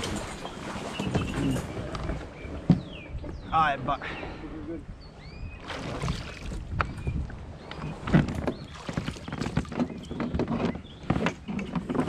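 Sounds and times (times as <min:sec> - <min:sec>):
water sloshing: 0:00.0 - 0:02.6, 0:05.6 - 0:12.0.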